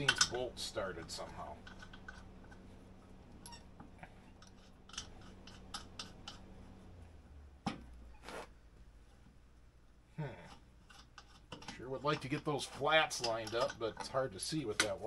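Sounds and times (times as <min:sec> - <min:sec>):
metal clicks and scrapes: 0:01.0 - 0:02.8, 0:03.4 - 0:06.8, 0:10.5 - 0:15.0.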